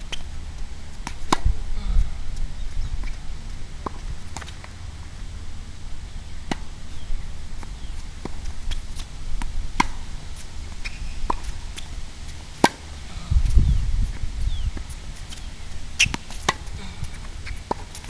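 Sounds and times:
racket hitting tennis ball: 0:01.0 - 0:01.6, 0:03.8 - 0:04.7, 0:06.4 - 0:06.7, 0:07.6 - 0:11.9, 0:12.5 - 0:12.9, 0:14.8 - 0:18.0.

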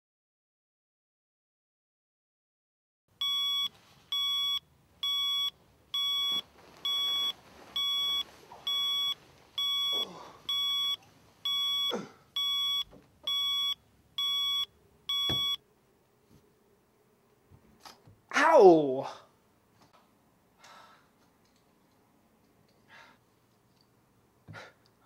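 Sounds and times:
alarm clock beeping: 0:03.2 - 0:15.6.

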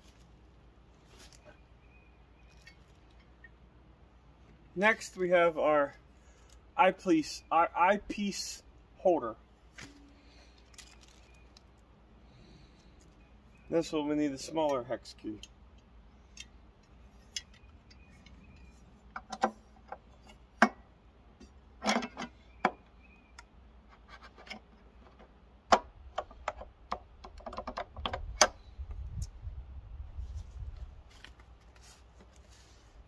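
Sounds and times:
metal fasteners clicking and tapping: 0:24.3 - 0:28.6.

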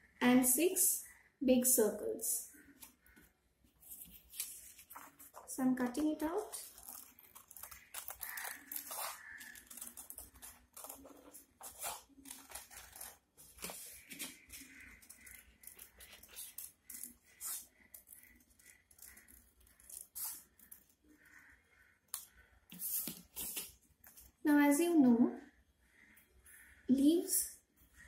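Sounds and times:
scissors snipping paper: 0:04.0 - 0:20.9.

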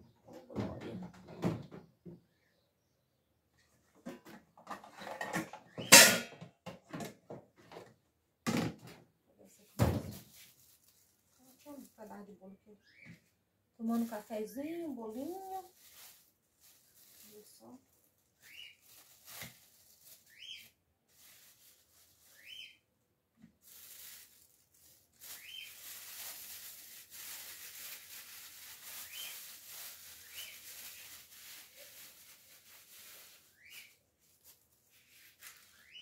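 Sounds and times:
plastic bag crinkling: 0:10.1 - 0:12.2, 0:13.8 - 0:22.7, 0:23.6 - 0:36.0.

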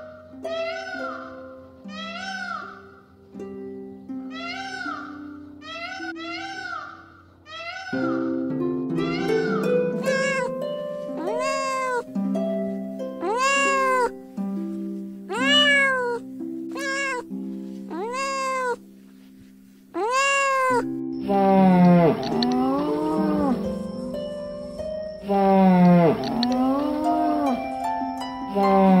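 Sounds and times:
soft background music: 0:00.0 - 0:20.0, 0:20.6 - 0:29.0
low animal call: 0:00.5 - 0:03.1, 0:04.3 - 0:12.1, 0:13.2 - 0:14.2, 0:15.3 - 0:16.2, 0:16.8 - 0:17.3, 0:17.9 - 0:18.8, 0:20.0 - 0:27.8, 0:28.4 - 0:29.0
cat meowing: 0:04.3 - 0:08.3, 0:09.0 - 0:10.5, 0:11.2 - 0:12.1, 0:13.2 - 0:14.2, 0:15.3 - 0:17.3, 0:17.9 - 0:18.8, 0:20.0 - 0:23.6, 0:25.3 - 0:27.6.

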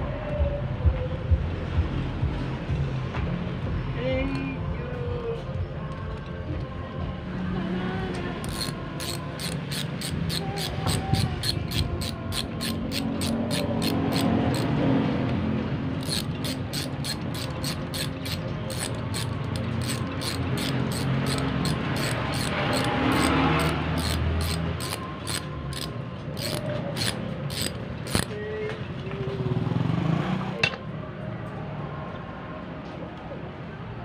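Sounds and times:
ratchet wrench clicking: 0:08.4 - 0:14.8, 0:16.0 - 0:28.3.

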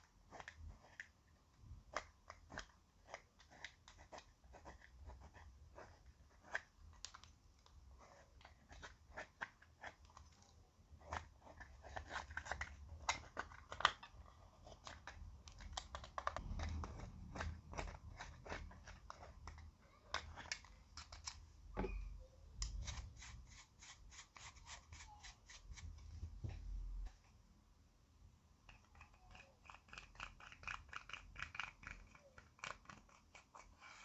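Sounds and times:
stick scratching powder: 0:16.4 - 0:19.6, 0:22.7 - 0:26.0
makeup brush rubbing powder: 0:22.8 - 0:26.4.

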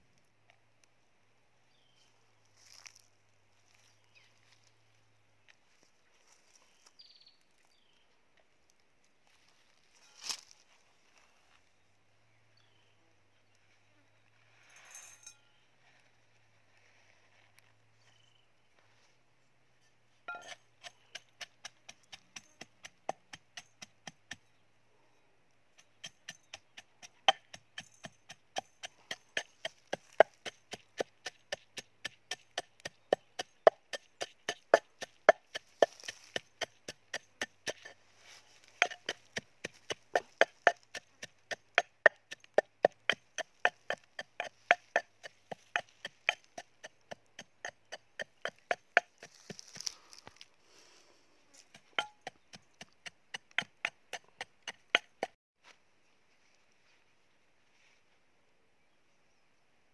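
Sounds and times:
pestle pounding in metal bowl: 0:20.3 - 0:24.4, 0:25.8 - 0:38.0, 0:38.7 - 0:49.6, 0:51.7 - 0:55.4.

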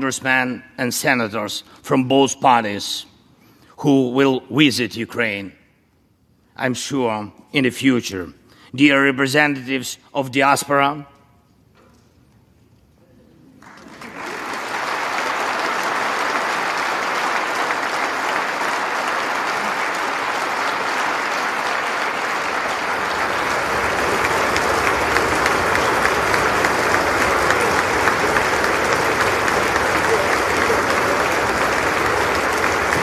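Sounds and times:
crowd applause: 0:13.6 - 0:33.0.

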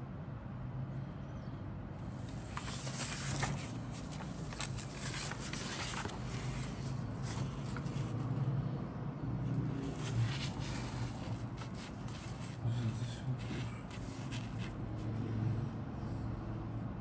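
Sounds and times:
paper rustling and crinkling: 0:02.2 - 0:08.2, 0:09.8 - 0:12.8, 0:13.4 - 0:15.0.

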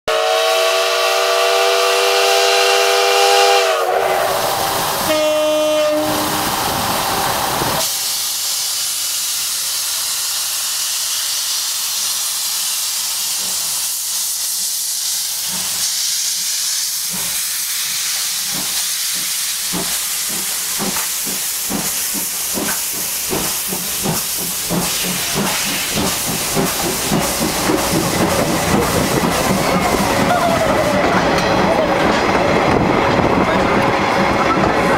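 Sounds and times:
steam locomotive whistle: 0:00.0 - 0:06.7
hissing steam: 0:00.1 - 0:34.9
locomotive exhaust chuffs: 0:17.0 - 0:30.9.

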